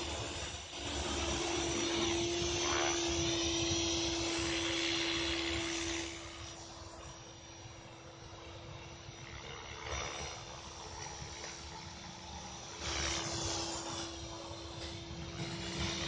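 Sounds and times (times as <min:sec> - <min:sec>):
model helicopter motor whine: 0:00.0 - 0:16.0
rotor blades whooshing: 0:09.3 - 0:16.0.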